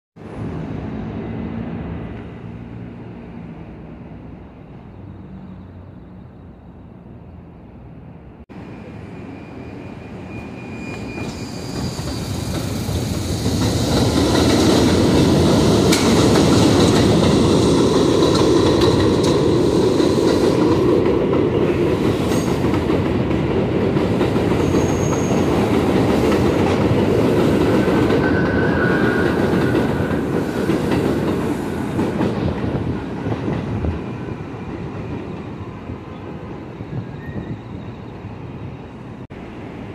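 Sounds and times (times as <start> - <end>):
high wheel squeals: 8.6 - 13.9, 24.6 - 25.7, 27.8 - 30.6, 36.7 - 39.0
train wheels rumbling and clattering: 10.8 - 38.0.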